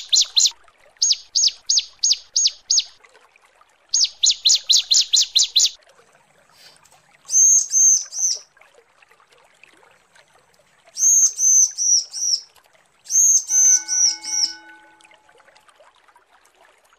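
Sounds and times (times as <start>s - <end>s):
bird chirping: 0.0s - 3.0s, 4.0s - 5.8s, 11.0s - 12.4s, 13.1s - 15.0s.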